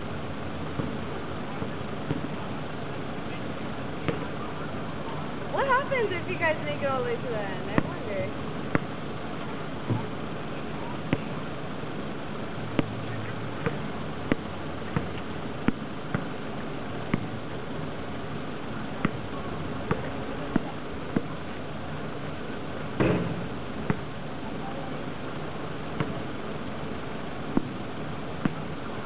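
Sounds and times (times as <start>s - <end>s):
steady hiss: 0.0s - 29.0s
loud thump: 23.0s - 24.0s.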